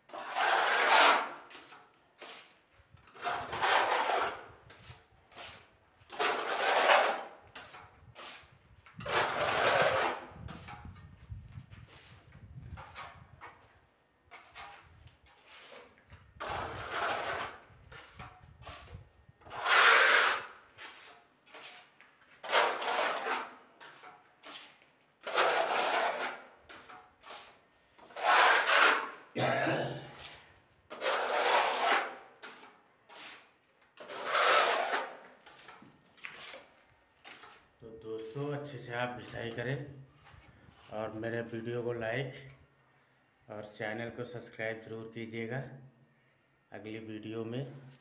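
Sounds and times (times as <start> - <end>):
sandpaper scraping on wall: 0.1 - 10.9, 14.3 - 29.3, 30.2 - 37.7.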